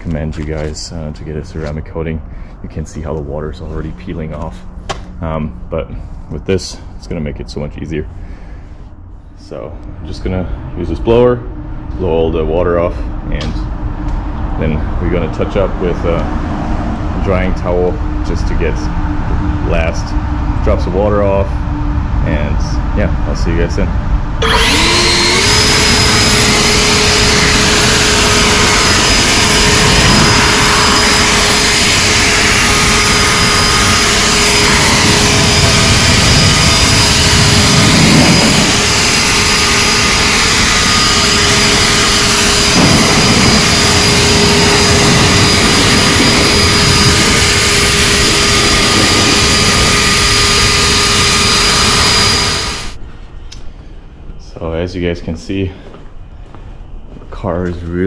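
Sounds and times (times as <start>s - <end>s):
leaf blower running: 24.4s - 53.0s.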